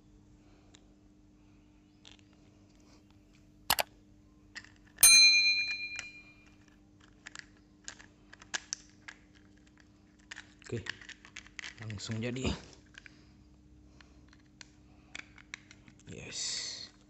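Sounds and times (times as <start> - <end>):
bell ding: 5.0 - 6.4
plastic toy parts clicking: 6.6 - 12.2, 14.3 - 16.1.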